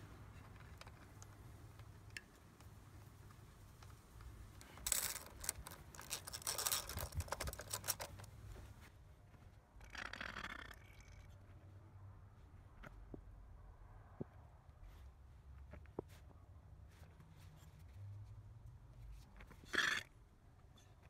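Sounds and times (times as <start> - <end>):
ratchet clicking: 4.8 - 8.1.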